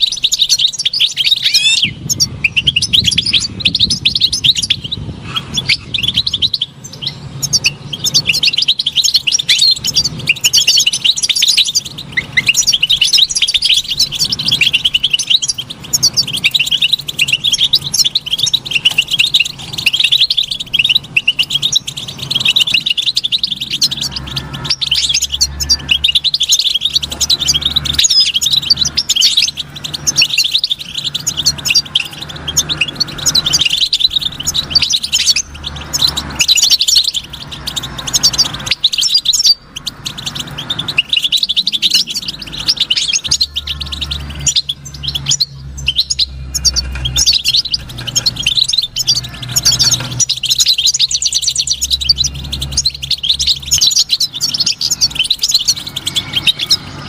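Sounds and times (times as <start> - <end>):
goldfinch singing: 0.0 - 57.0.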